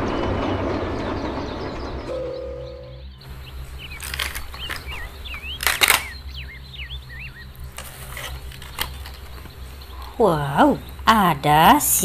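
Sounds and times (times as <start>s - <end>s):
birds chirping: 0.0s - 12.0s
steady low hum: 0.0s - 12.0s
plastic toys clicking and clattering: 3.8s - 6.2s, 7.7s - 9.6s.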